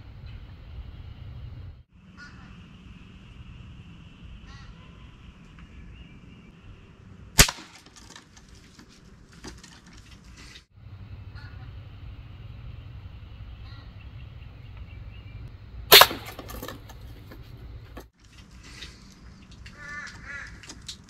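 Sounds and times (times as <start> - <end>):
crossbow firing snap: 7.4 - 7.9, 15.9 - 16.7
light clicks and rustles: 7.8 - 10.7.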